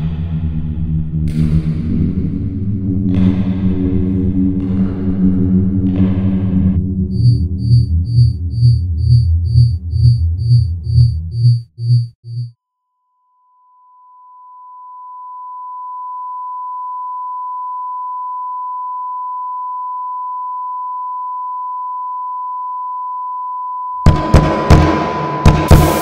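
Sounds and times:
loud thumps: 0:05.8 - 0:12.5, 0:24.1 - 0:26.0
high-pitched sine tone: 0:06.8 - 0:24.1, 0:25.0 - 0:26.0.

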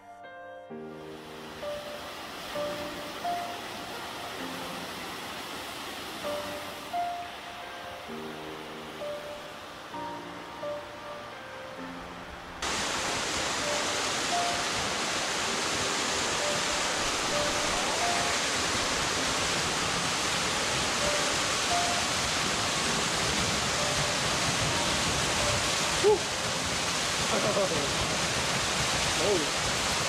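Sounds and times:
waterfall pouring onto rocks: 0:12.6 - 0:30.0.

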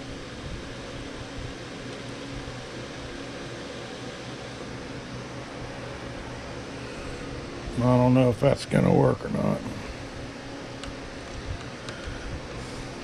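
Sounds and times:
fan humming and hissing: 0:00.0 - 0:13.0.

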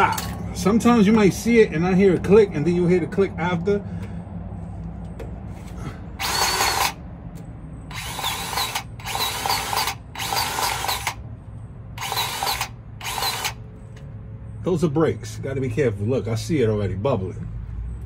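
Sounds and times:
grease gun motor bursts: 0:06.2 - 0:07.0, 0:07.9 - 0:11.2, 0:12.0 - 0:13.6.

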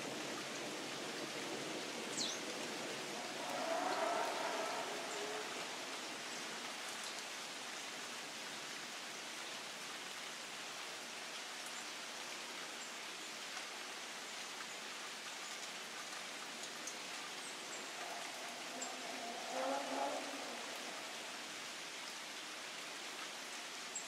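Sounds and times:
rain falling on leaves: 0:00.0 - 0:24.0.

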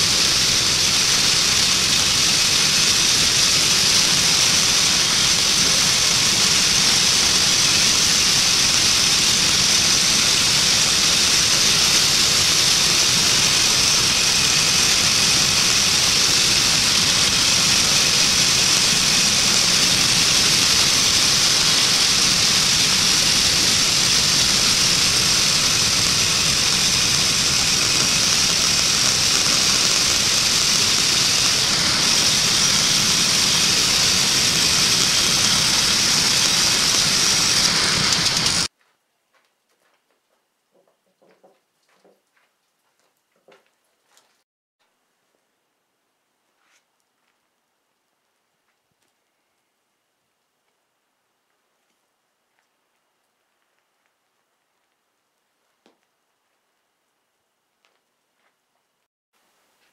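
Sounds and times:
band saw blade hissing through wood: 0:00.0 - 0:38.7
gas engine running under load: 0:00.0 - 0:38.7.

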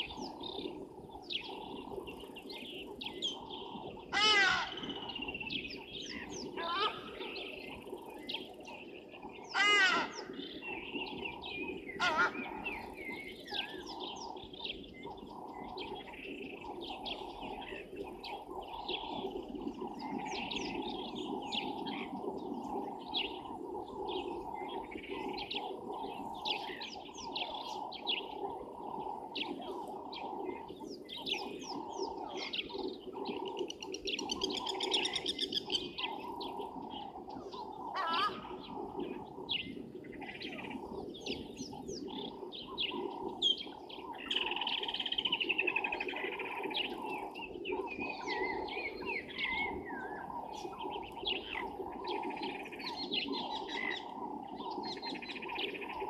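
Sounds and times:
birds chirping and calling: 0:00.0 - 0:56.0
loud bird call falling in pitch: 0:12.0 - 0:12.4.

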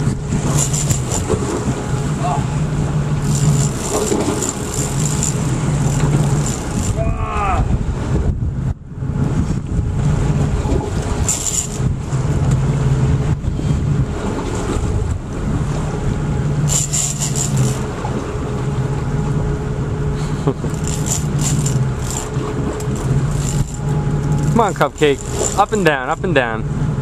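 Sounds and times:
boat engine idling: 0:00.0 - 0:27.0
high rattling clicks: 0:20.7 - 0:25.7.

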